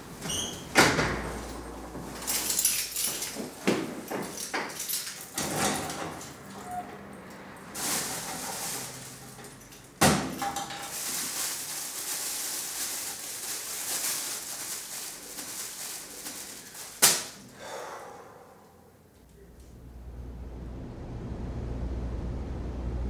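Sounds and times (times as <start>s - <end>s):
paper rustling: 10.8s - 17.4s.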